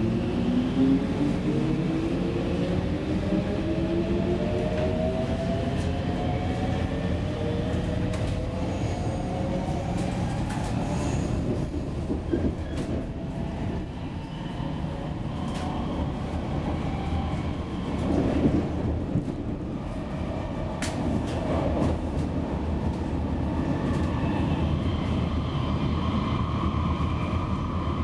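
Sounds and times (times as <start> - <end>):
train wheel and rail rumble: 0.0 - 28.0
rail clicks: 20.7 - 23.1.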